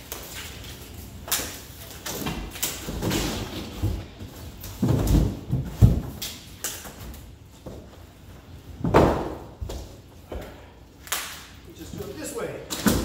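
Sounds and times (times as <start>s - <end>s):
carton corners thudding: 2.0s - 6.2s, 8.8s - 10.5s.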